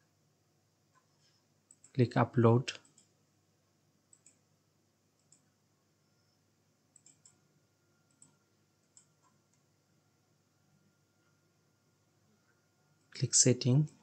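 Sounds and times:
computer mouse clicks: 1.7s - 2.0s, 2.7s - 3.2s, 4.1s - 4.4s, 5.2s - 5.5s, 6.9s - 7.4s, 8.0s - 9.7s.

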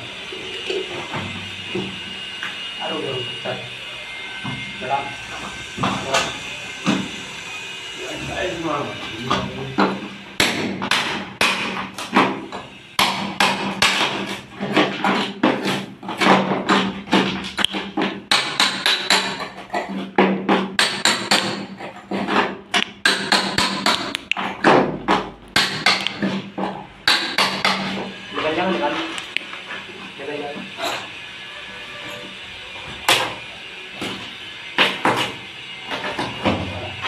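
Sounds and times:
hammer striking chisel on concrete: 9.8s - 12.3s, 13.0s - 14.4s, 16.2s - 28.0s.

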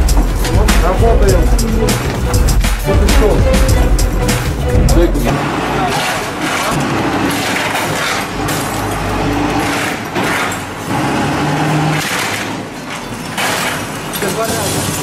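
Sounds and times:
glass and metal breaking: 5.8s - 15.0s.

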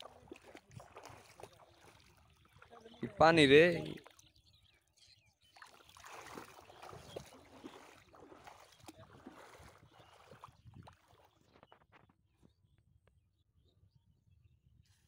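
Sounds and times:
river water sloshing: 0.0s - 4.6s, 5.4s - 11.4s.

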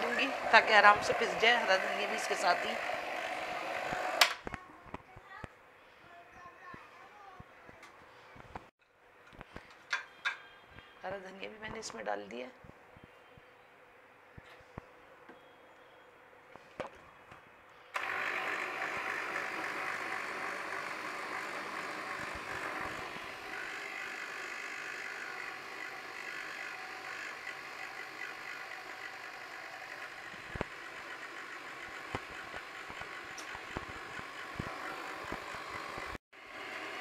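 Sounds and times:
electric blender grinding: 0.0s - 4.3s, 18.0s - 37.0s.

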